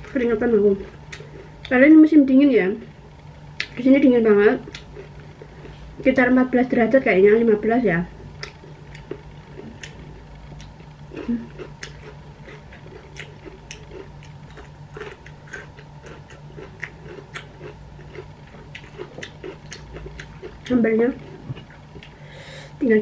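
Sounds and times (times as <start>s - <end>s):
chewing crunchy green beans: 0.0s - 1.8s, 4.6s - 6.1s, 8.1s - 22.2s
low hum: 0.0s - 23.0s.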